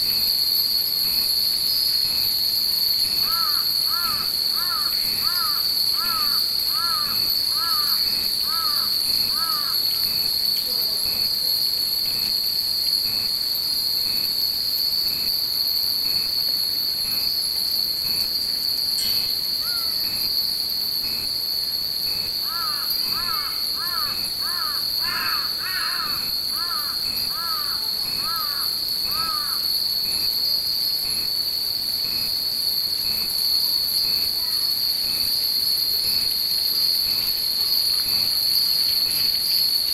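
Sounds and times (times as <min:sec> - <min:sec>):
cicadas droning: 0:00.0 - 0:39.9
crows cawing: 0:03.3 - 0:09.8, 0:19.6 - 0:20.0, 0:22.4 - 0:29.6.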